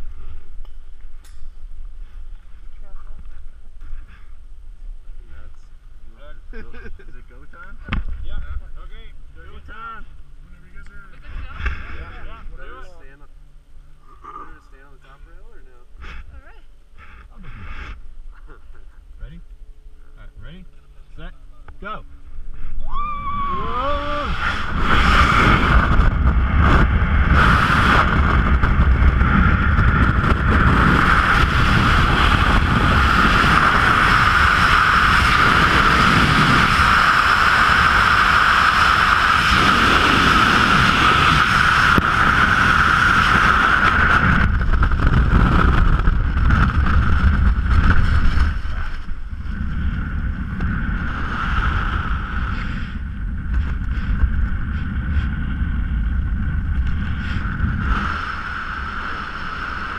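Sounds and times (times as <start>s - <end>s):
wind roaring over microphone: 21.7s - 59.9s.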